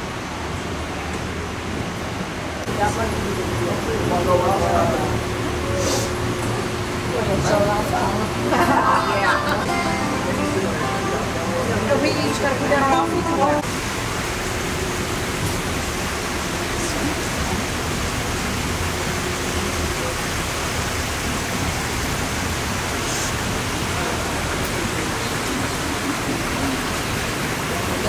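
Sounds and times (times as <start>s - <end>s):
flowing water hiss: 0.0s - 28.0s
faint voices: 2.6s - 13.7s, 23.0s - 28.0s.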